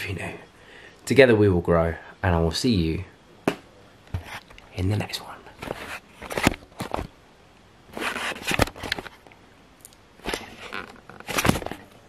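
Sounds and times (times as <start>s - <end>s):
camera handling rustling: 5.6s - 7.1s, 7.9s - 9.3s, 10.2s - 11.9s.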